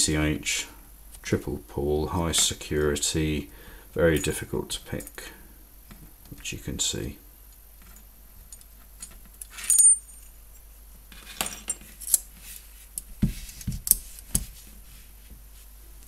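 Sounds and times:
handcuffs clinking: 0:09.5 - 0:10.3.

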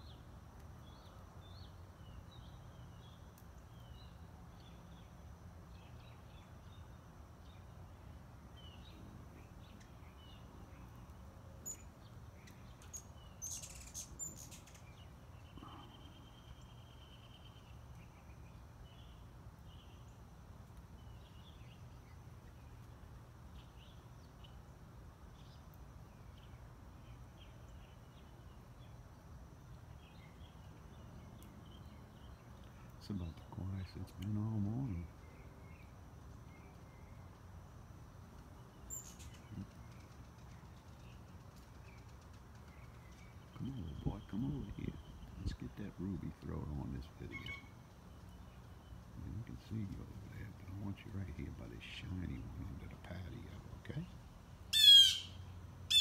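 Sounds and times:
small birds chirping: 0:00.0 - 0:56.0
low background rumble: 0:14.9 - 0:55.9.

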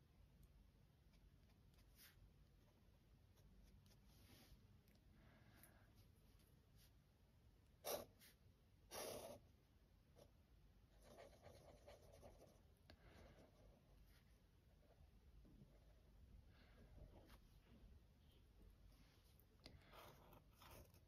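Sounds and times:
pen nib scratching paper: 0:07.8 - 0:09.4, 0:11.0 - 0:12.6, 0:19.8 - 0:21.0.

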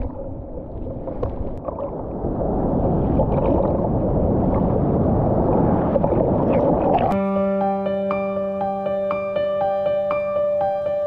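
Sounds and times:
muffled surf rushing: 0:00.0 - 0:07.2.

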